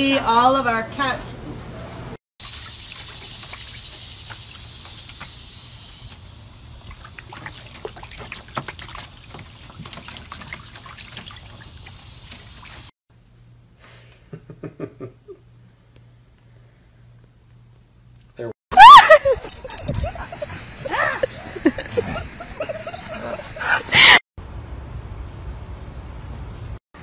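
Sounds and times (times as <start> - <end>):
puppy splashing in water: 2.4 - 5.4, 6.1 - 12.9.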